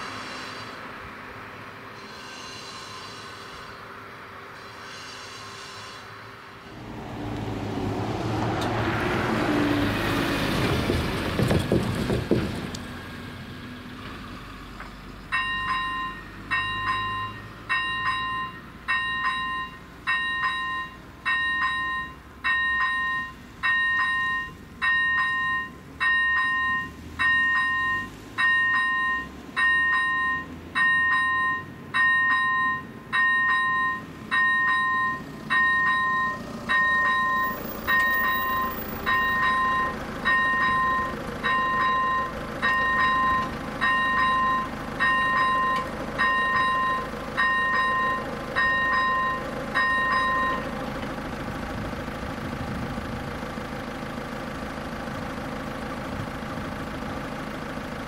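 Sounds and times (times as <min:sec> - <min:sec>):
train passing: 0:00.0 - 0:44.4
electronic crossing warning bell: 0:02.0 - 0:03.9, 0:15.3 - 0:50.8.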